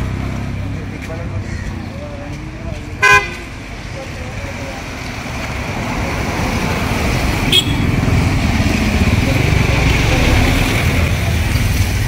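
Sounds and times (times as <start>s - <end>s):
motorcycle engine passing by: 5.3s - 12.0s.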